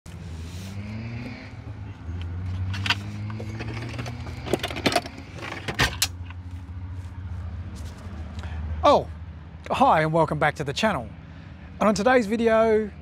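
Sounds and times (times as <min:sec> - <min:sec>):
low engine hum: 0:00.1 - 0:11.9
items clinking in metal toolbox: 0:02.8 - 0:06.1.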